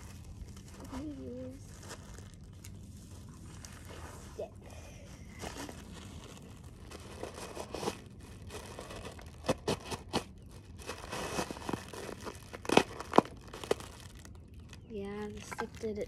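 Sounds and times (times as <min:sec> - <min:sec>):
plastic crinkling: 0:00.0 - 0:16.0
stick jabbing plastic packing: 0:05.4 - 0:16.0.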